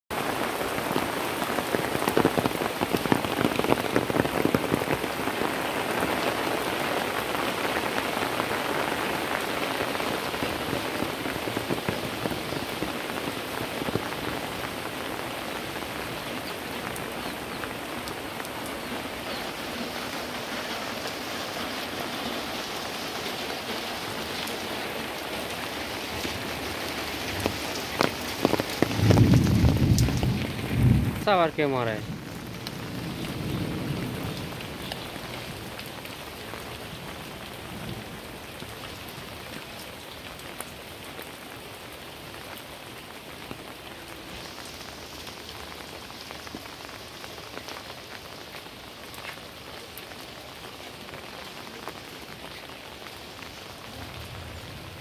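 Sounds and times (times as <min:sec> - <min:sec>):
heavy rain on ground and leaves: 0:00.0 - 0:55.0.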